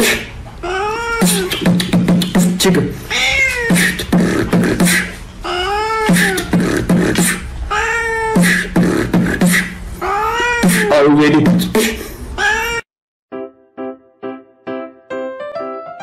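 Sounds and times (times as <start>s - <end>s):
beatboxing mouth clicks: 0.0s - 0.3s, 1.2s - 2.9s, 3.7s - 5.2s, 6.0s - 7.5s, 8.3s - 9.8s, 10.6s - 12.0s
cat meowing: 0.6s - 1.6s, 3.1s - 4.1s, 5.4s - 6.6s, 7.7s - 8.7s, 10.0s - 11.1s, 12.4s - 12.8s.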